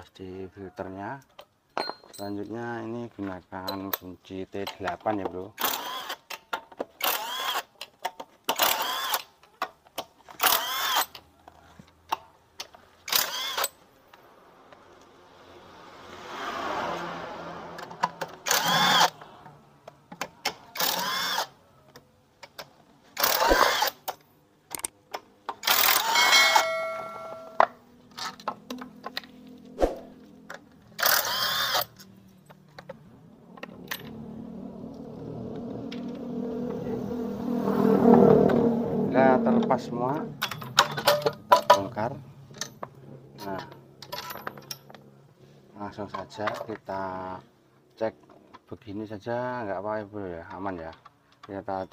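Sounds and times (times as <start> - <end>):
soft rushing scrape: 29.4 - 30.4.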